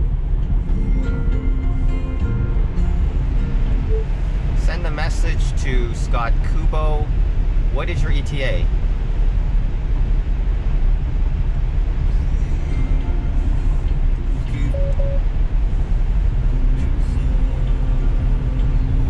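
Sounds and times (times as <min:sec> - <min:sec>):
faint music over car speakers: 0:00.0 - 0:07.0, 0:07.6 - 0:19.0
road and tyre rumble in car cabin: 0:00.0 - 0:19.0
short double tone: 0:14.6 - 0:15.2.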